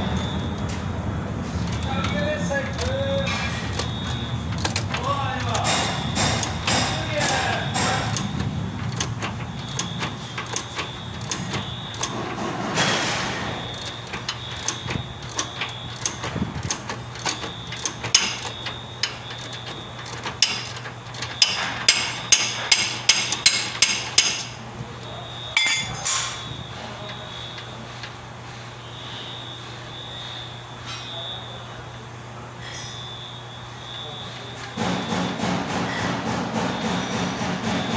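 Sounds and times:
hammer blows: 25.6s - 26.2s.

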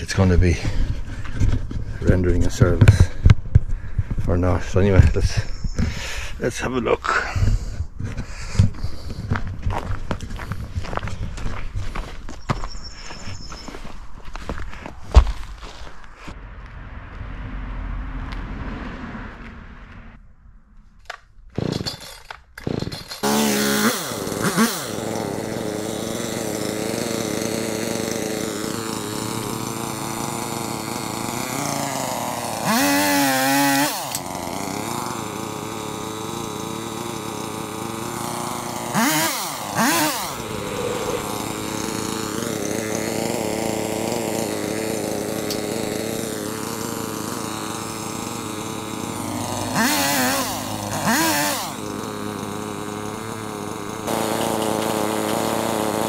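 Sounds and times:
chainsaw idling and revving: 0.0s - 3.3s, 21.5s - 56.0s.

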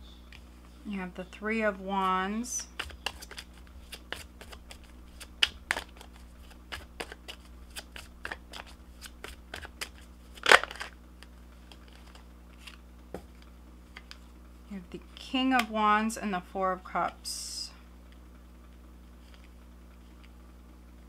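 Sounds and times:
faint low hum: 0.0s - 21.0s
cards being shuffled: 2.6s - 12.8s.

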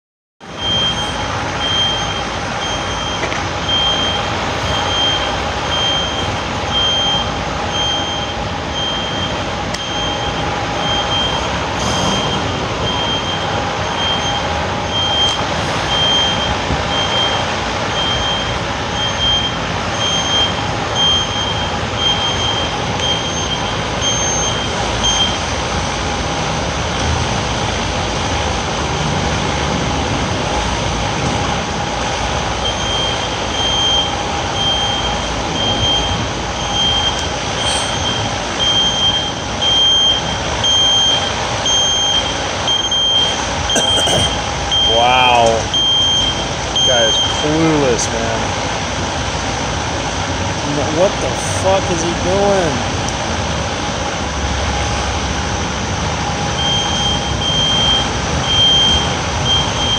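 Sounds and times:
diesel truck engine running: 0.4s - 59.9s
reversing alarm beeping: 0.5s - 25.6s, 31.8s - 48.1s, 54.6s - 59.9s.

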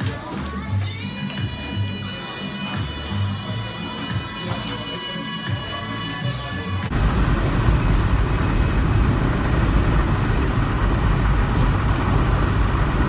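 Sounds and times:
music: 0.0s - 6.9s
wind buffeting in a moving car: 6.9s - 13.0s.

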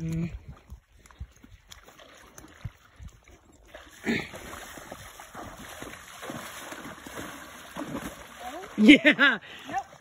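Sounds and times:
water splashing: 0.0s - 10.0s.

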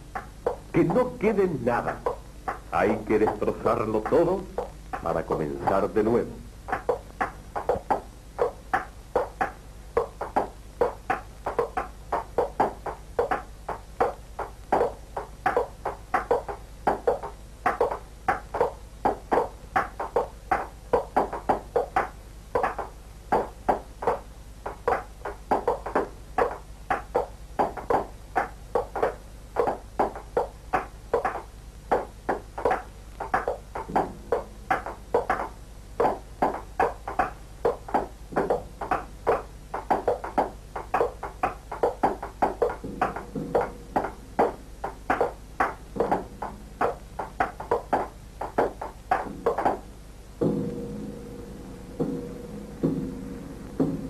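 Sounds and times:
short knocks varying in pitch: 0.2s - 54.0s
low hum: 49.3s - 54.0s.

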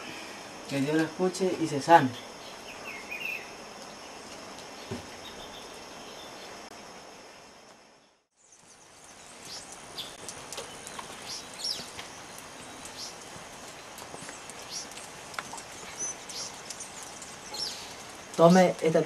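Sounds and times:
high insect drone: 0.0s - 10.1s
background hiss: 0.0s - 19.0s
birds chirping: 0.7s - 6.7s, 8.0s - 19.0s.

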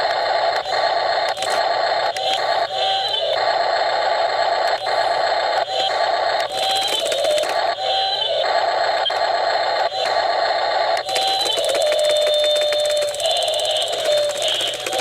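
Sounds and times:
electric breaker rattling on ice: 11.0s - 15.0s.

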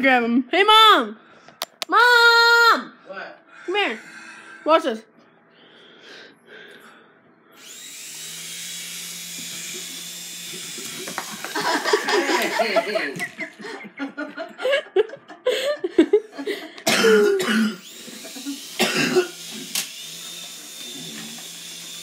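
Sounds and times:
toy helicopter rotor whine: 7.6s - 12.6s, 17.8s - 22.0s
laughter: 10.9s - 16.8s
cough-like voice bursts: 16.8s - 17.8s, 18.8s - 19.4s.

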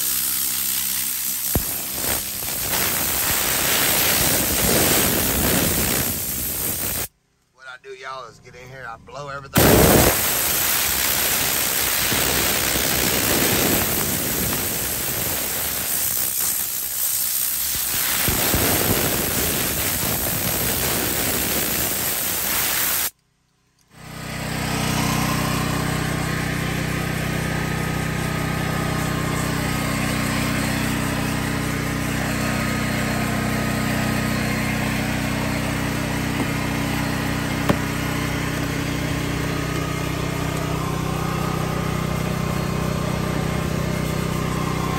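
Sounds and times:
rushing hiss of detailing tool: 0.0s - 7.1s, 9.6s - 23.1s
low engine hum: 24.0s - 44.9s.

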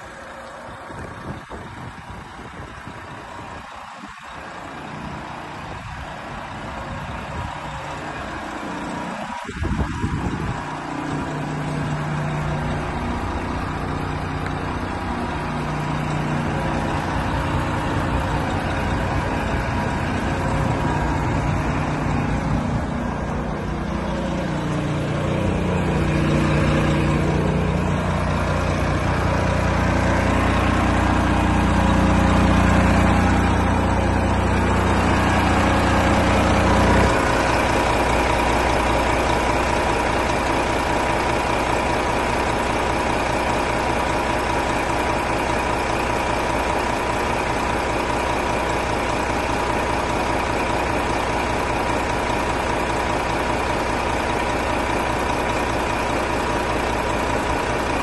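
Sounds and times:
diesel truck engine idling: 0.0s - 58.0s
thin whine: 4.0s - 40.6s.

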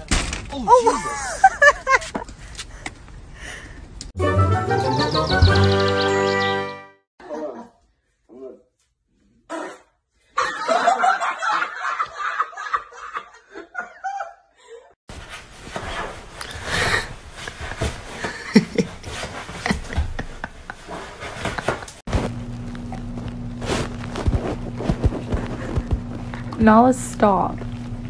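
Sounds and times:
people laughing: 0.7s - 2.1s, 10.4s - 14.4s, 18.2s - 22.0s.

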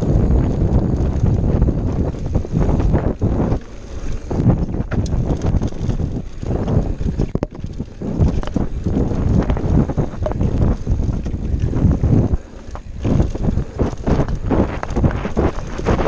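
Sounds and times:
bike knocking and rattling: 0.0s - 16.0s
mountain bike rolling on dirt: 0.0s - 16.0s
wind buffeting microphone: 0.0s - 16.0s.

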